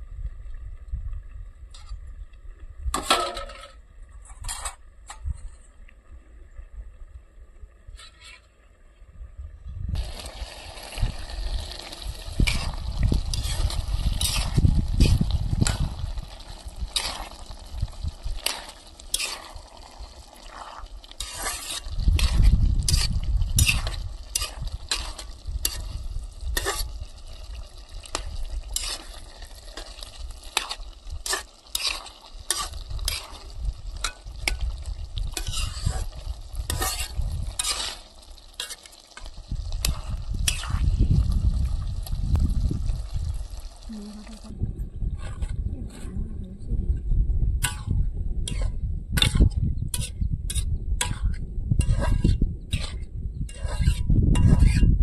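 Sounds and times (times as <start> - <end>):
spoon scraping in a pot: 7.9 - 8.5, 12.4 - 27.0, 28.1 - 41.0, 45.1 - 46.2, 47.6 - 55.0
low rumble: 8.9 - 18.8, 39.4 - 53.5
food frying sizzle: 10.0 - 44.5.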